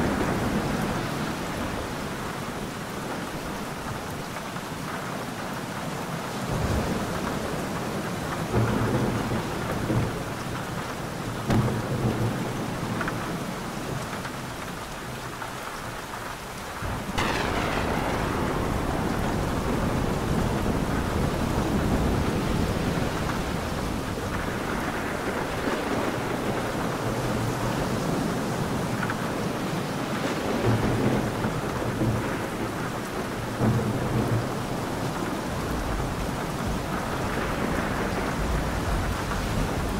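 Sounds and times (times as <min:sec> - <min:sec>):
heavy rain: 0:00.0 - 0:39.9
close thunder clap: 0:16.8 - 0:27.4
thunder rumbling: 0:16.8 - 0:29.2.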